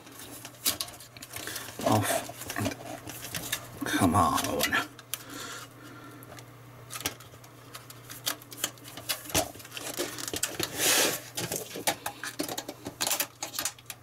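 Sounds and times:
plastic and metal clicks and knocks: 11.4 - 14.0.

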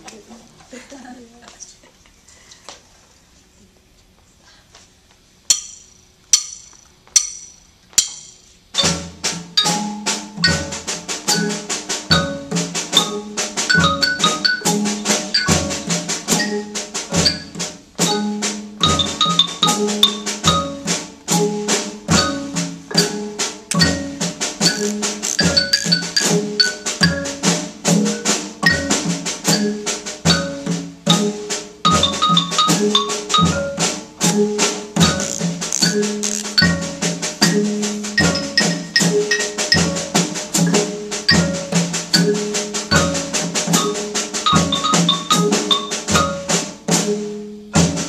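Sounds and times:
marimba played with mallets: 5.5 - 48.0
sharp count-in clicks: 35.1 - 36.6.

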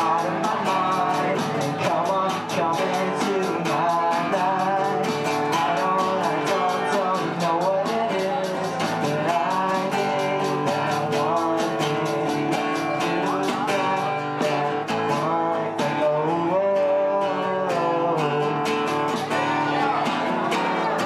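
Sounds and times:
electronic drum beat: 0.0 - 16.0
acoustic guitar strumming: 0.0 - 21.0
man singing into a microphone: 0.0 - 21.0.

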